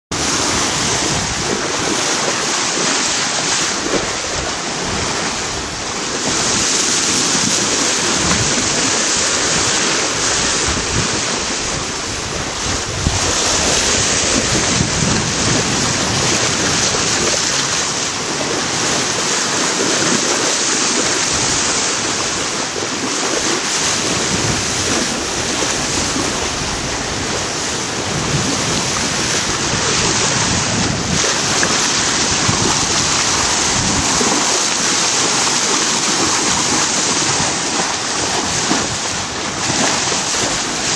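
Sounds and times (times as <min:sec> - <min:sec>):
water rushing along hull: 0:00.1 - 0:40.9
wind buffeting microphone: 0:00.1 - 0:40.9.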